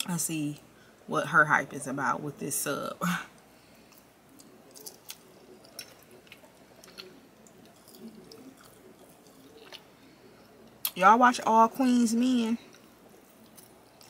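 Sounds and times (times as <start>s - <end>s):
person chewing wet mouth sounds: 3.8s - 11.0s.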